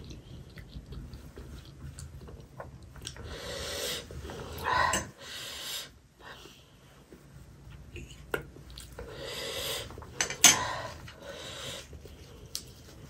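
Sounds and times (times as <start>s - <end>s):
person breathing hard: 3.2s - 6.8s, 9.0s - 12.0s.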